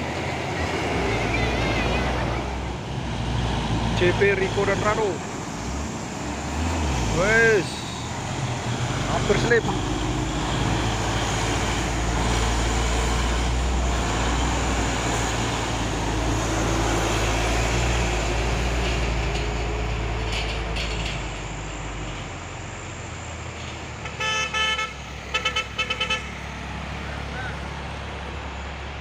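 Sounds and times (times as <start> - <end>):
truck diesel engine rumbling uphill: 0.0 - 29.0
multi-tone truck horn: 24.0 - 26.6.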